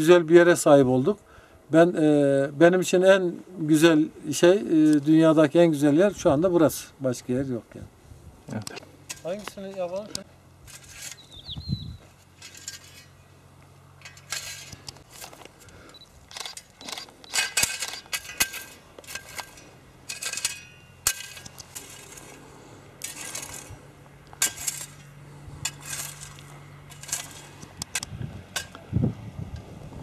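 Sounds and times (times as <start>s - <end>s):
hoe chopping and scraping soil: 8.8s - 29.0s.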